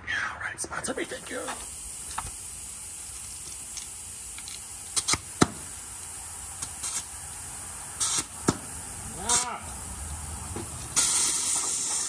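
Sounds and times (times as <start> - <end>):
aerosol spray squirts: 1.6 - 8.7, 10.7 - 12.0.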